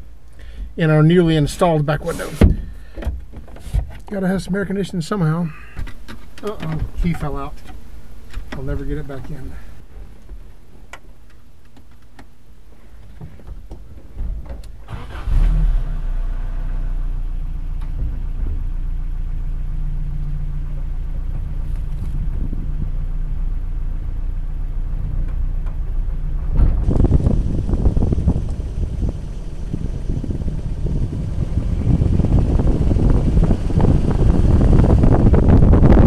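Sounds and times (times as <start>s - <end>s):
wind and wheel noise: 0.0s - 5.0s, 5.7s - 36.0s
pickup engine starting and running: 13.5s - 36.0s.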